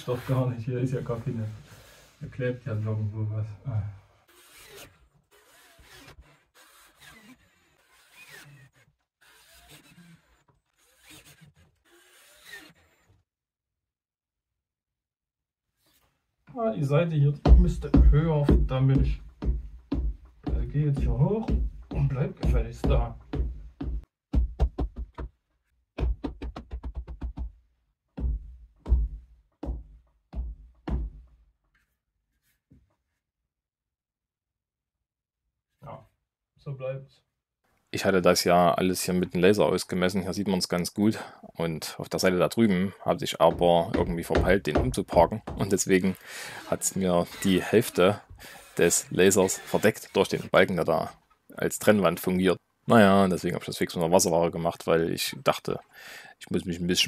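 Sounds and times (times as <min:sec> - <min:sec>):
scraping and rubbing of hand work: 0:00.0 - 0:03.2, 0:04.0 - 0:13.2, 0:15.7 - 0:16.2, 0:42.6 - 0:51.5
short squeaks: 0:04.3 - 0:13.1, 0:46.7 - 0:50.7.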